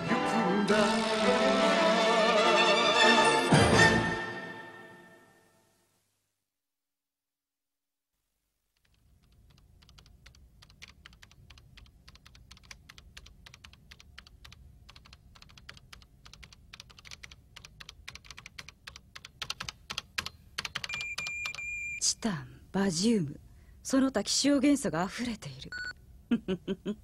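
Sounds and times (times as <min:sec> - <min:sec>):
rapid typing on keyboard: 0:08.8 - 0:21.7.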